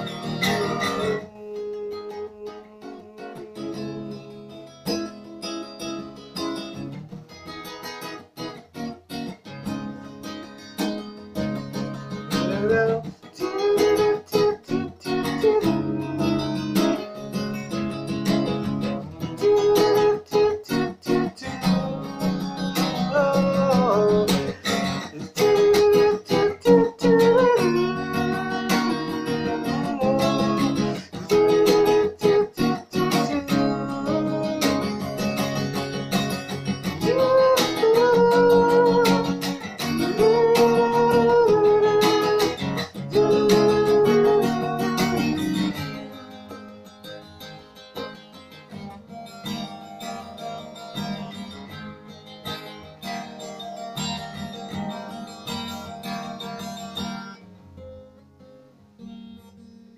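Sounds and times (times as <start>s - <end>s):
acoustic guitar strumming: 0.0s - 59.9s
man singing: 0.2s - 5.0s, 12.3s - 17.9s, 19.1s - 35.6s, 36.2s - 46.4s.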